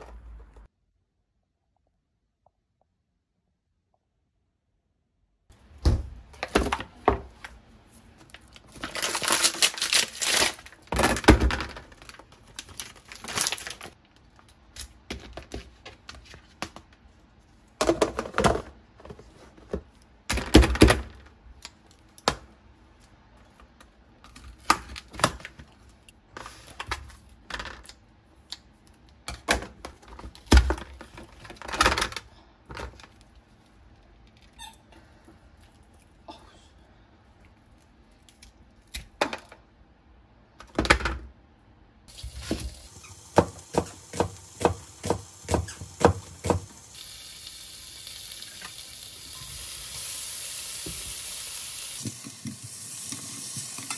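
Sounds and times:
plastic crinkling: 0:08.1 - 0:14.5.

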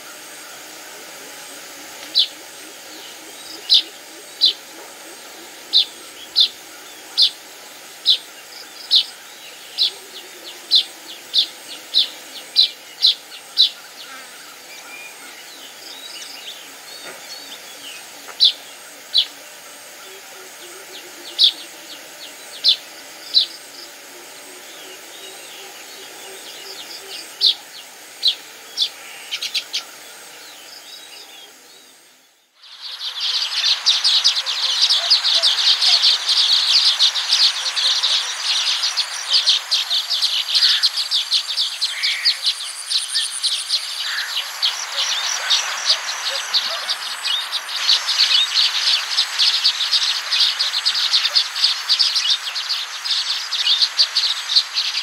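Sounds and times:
faint bird chatter: 0:00.0 - 0:55.0.

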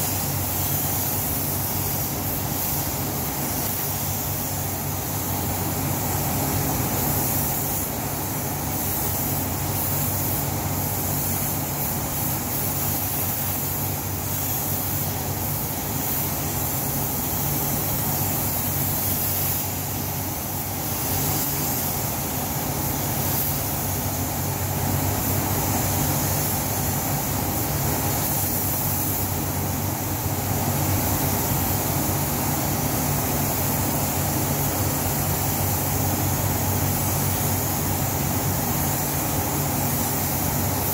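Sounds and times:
spray gun hissing: 0:00.0 - 0:40.9
ventilation fans humming: 0:00.0 - 0:40.9.

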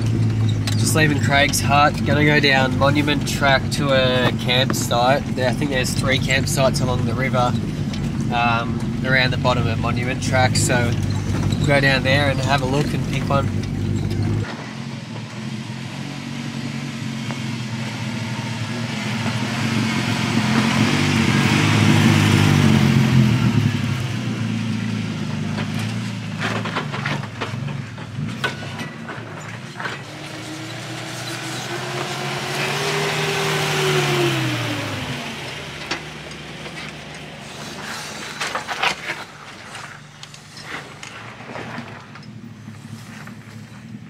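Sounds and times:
vehicle engines passing: 0:00.0 - 0:44.0
stones popping under tyres: 0:35.4 - 0:44.0.

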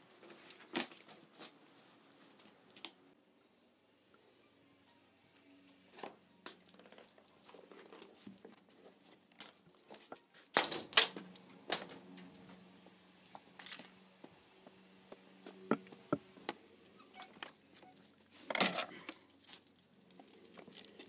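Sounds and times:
front door opening and shutting: 0:10.5 - 0:12.2.

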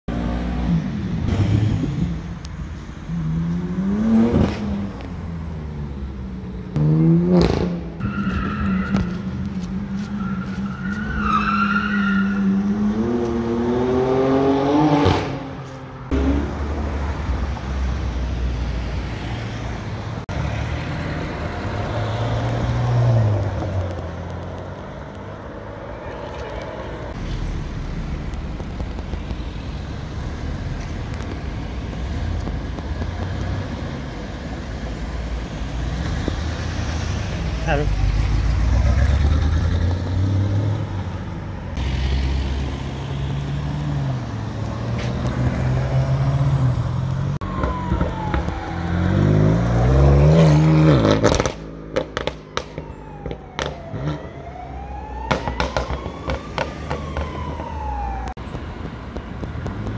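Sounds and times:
sports car engines pulling away: 0:03.0 - 0:18.4, 0:20.4 - 0:25.9, 0:29.8 - 0:58.2
tires squealing: 0:07.4 - 0:14.6.

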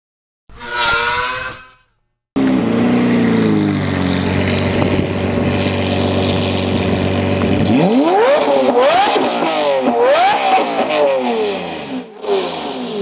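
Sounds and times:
logo sound: 0:00.5 - 0:02.0
car engine revving and idling: 0:02.4 - 0:13.0.

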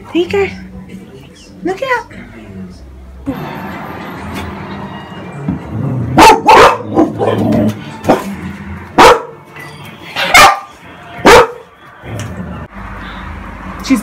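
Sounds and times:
dog barking: 0:06.2 - 0:08.3, 0:09.0 - 0:09.4, 0:10.2 - 0:11.7.

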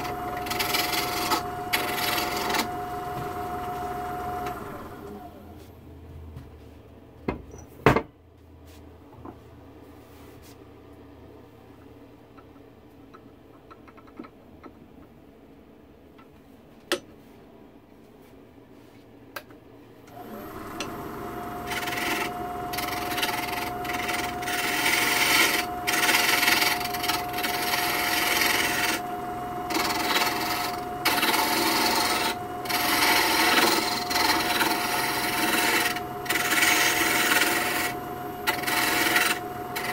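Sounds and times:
turning tool scraping wood: 0:00.0 - 0:05.1, 0:20.1 - 0:39.9
wood lathe running: 0:00.0 - 0:05.4, 0:20.1 - 0:39.9.

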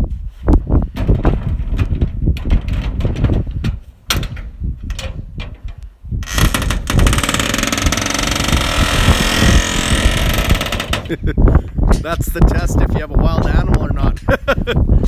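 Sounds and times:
metal trailer gate clanks: 0:01.0 - 0:11.1
steady rushing noise: 0:06.3 - 0:11.4.

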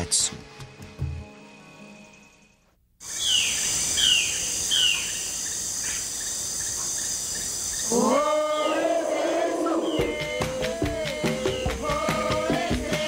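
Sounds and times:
music: 0:00.0 - 0:02.7, 0:09.6 - 0:13.0
insect chorus trilling: 0:02.1 - 0:12.7.

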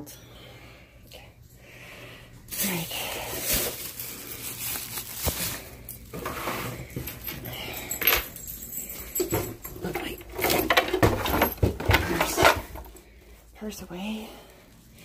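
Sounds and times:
rustling: 0:02.4 - 0:07.3
light metallic clinks: 0:06.9 - 0:10.7.

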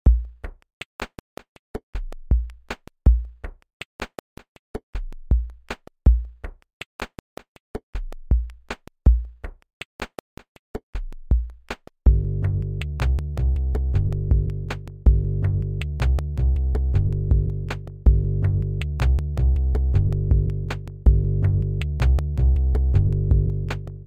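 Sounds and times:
deep bass kicks: 0:12.1 - 0:24.0.

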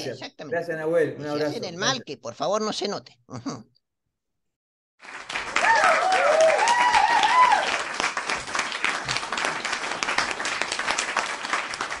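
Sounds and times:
crowd applause: 0:05.0 - 0:12.0
crowd cheering: 0:05.2 - 0:12.0.

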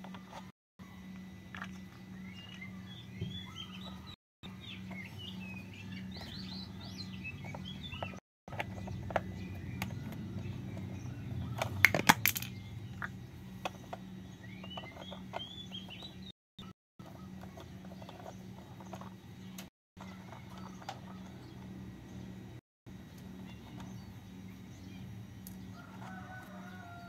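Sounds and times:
birds chirping: 0:00.0 - 0:27.0
steady low hum: 0:00.0 - 0:27.0
plastic toy parts clicking: 0:11.6 - 0:14.0.

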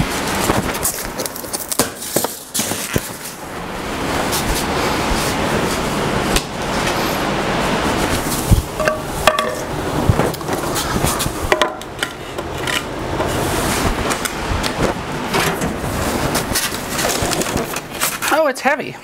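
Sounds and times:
sharp knocks: 0:08.8 - 0:10.3.

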